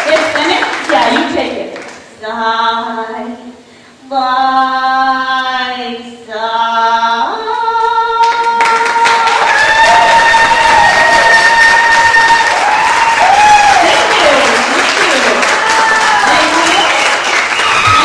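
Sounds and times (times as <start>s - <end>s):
applause: 0.0s - 2.1s, 8.2s - 18.0s.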